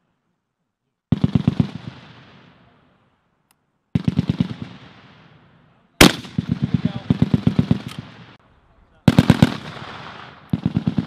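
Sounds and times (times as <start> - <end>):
machine gun bursts echoing: 4.0 - 4.8, 6.0 - 8.2, 9.1 - 11.0.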